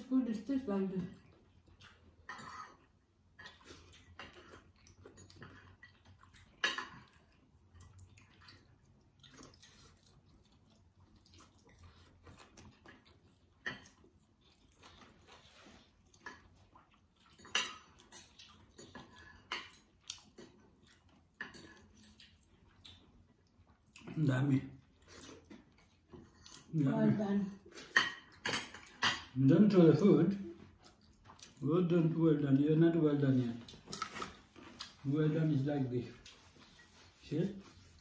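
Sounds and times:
chewing: 1.0 - 26.9, 27.5 - 32.7, 33.4 - 35.1
cutlery clinking on plates: 27.7 - 29.4.

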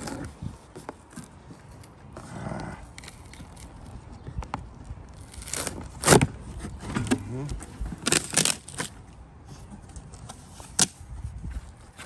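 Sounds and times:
knife slitting packing tape: 5.2 - 6.3, 8.0 - 8.9.

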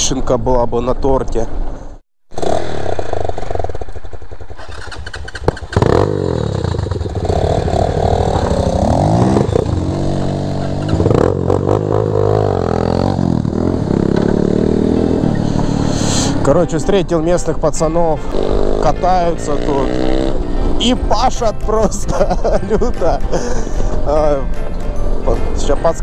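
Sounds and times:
motorcycle engines revving: 2.3 - 23.2.

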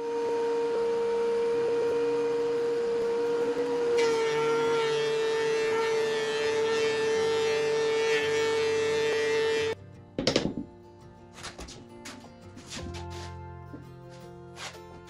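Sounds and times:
thickness planer whining: 0.0 - 9.8
planer knives cutting wood: 3.1 - 9.8, 11.4 - 13.4, 14.5 - 15.0.

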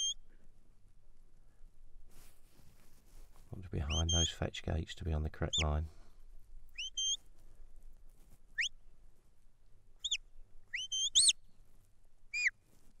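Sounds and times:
short sharp whistles: 0.0 - 0.2, 6.7 - 7.2, 8.5 - 8.8, 10.0 - 11.4, 12.3 - 12.6.

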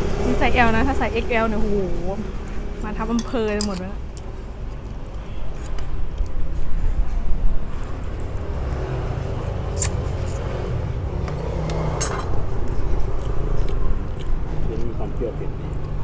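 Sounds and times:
steady low rumble: 0.0 - 11.4, 12.0 - 16.0.

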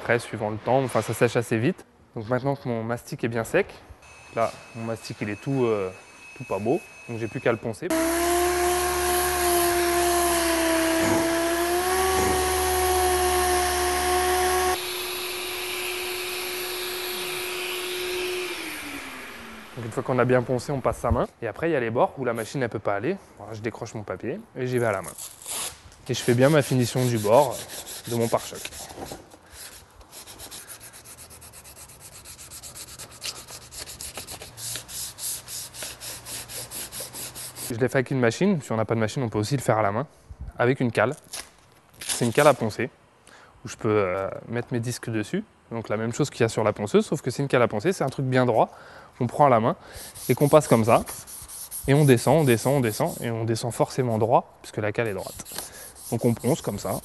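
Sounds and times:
sander motor whine: 4.0 - 21.0
sanding disc hiss: 26.2 - 37.7, 50.0 - 53.3, 55.0 - 57.0.

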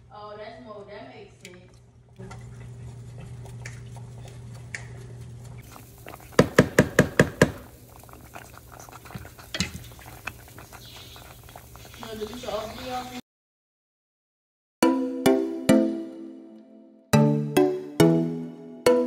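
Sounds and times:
spatula stirring bubbling grits: 2.2 - 13.2
spatula knocking on pot: 6.4 - 7.7.

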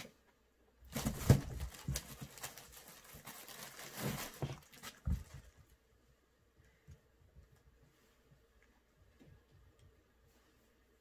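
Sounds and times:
rustling paper and plastic bag: 0.9 - 5.6.

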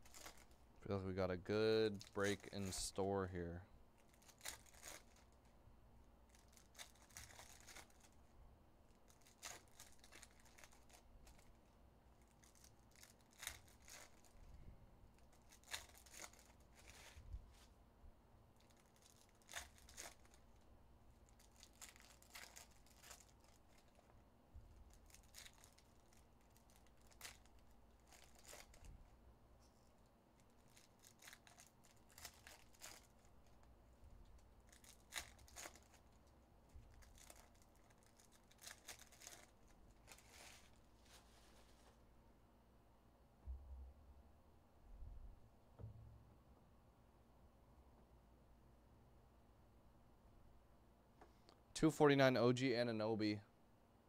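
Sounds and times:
foil wrappers tearing and crinkling: 0.0 - 0.6, 1.9 - 3.3, 4.0 - 5.4, 6.3 - 8.2, 9.1 - 11.6, 12.2 - 14.4, 15.2 - 17.2, 18.6 - 20.5, 21.2 - 24.1, 24.8 - 28.9, 30.4 - 33.6, 34.6 - 40.8
cards being handled: 1.9 - 3.4.

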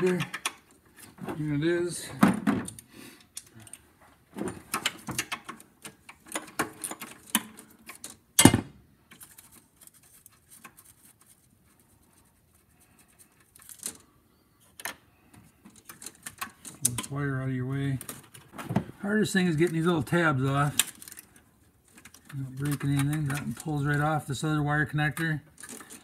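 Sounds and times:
metal hand tools clicking and rattling: 19.6 - 26.0.

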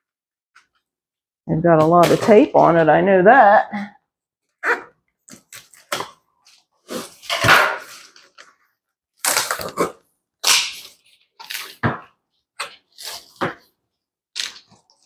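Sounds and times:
packing tape ripping off cardboard: 9.2 - 13.6.

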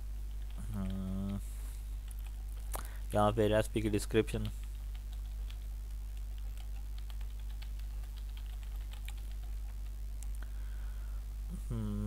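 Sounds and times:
low electrical hum: 0.0 - 12.0
typing on computer keyboard: 6.4 - 9.8.

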